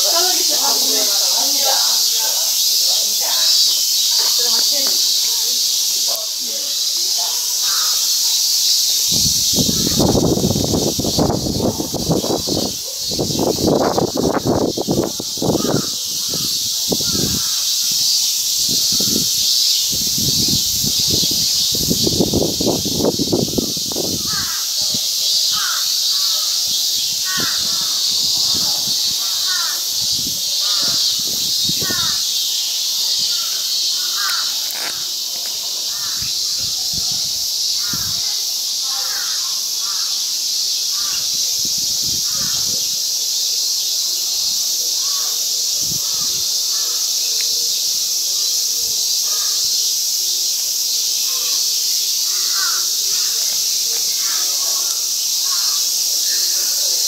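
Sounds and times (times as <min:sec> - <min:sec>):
cicadas buzzing: 0:00.0 - 0:57.0
crows cawing: 0:06.6 - 0:08.3, 0:15.4 - 0:17.9, 0:24.1 - 0:32.4, 0:33.2 - 0:35.2, 0:35.8 - 0:36.5, 0:37.8 - 0:40.3, 0:40.9 - 0:41.3, 0:52.3 - 0:53.4.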